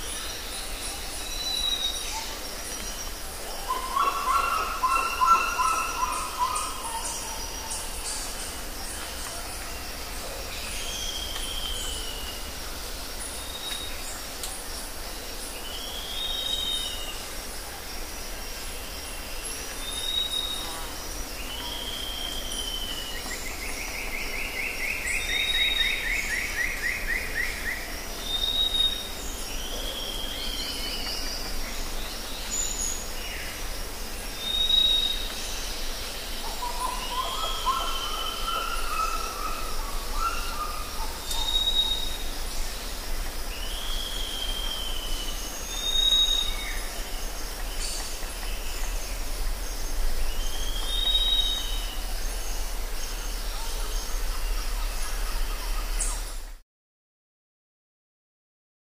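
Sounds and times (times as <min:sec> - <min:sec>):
steady high hiss: 0:00.0 - 0:56.6.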